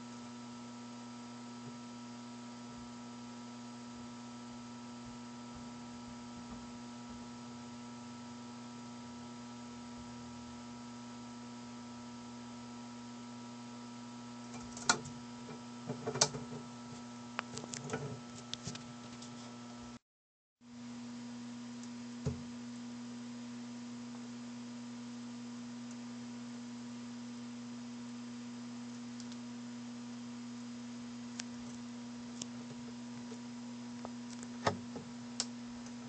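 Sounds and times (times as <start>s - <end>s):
steady electrical hum: 0.0s - 20.0s, 20.7s - 36.0s
sharp clicks and knocks: 14.5s - 16.7s.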